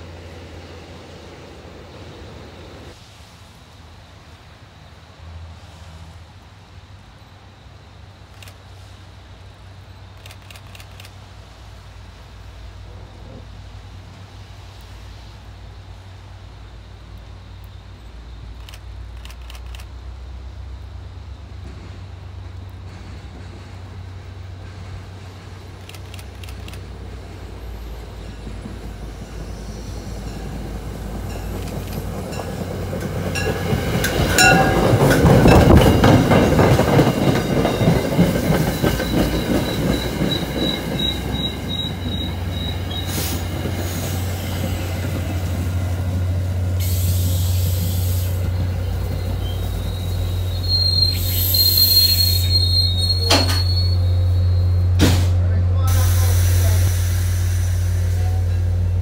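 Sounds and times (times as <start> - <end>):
diesel locomotive rumble: 0.0 - 59.0
train wheel clatter: 21.5 - 59.0
high-pitched wheel squeal: 47.9 - 55.0.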